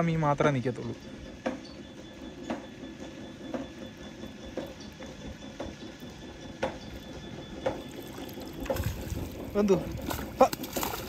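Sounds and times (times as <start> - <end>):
net splashing in shallow water: 7.8 - 11.0.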